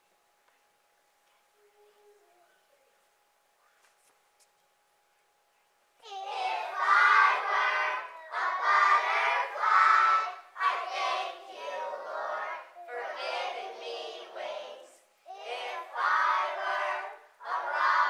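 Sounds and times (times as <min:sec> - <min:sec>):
children singing in unison: 0:06.0 - 0:18.0.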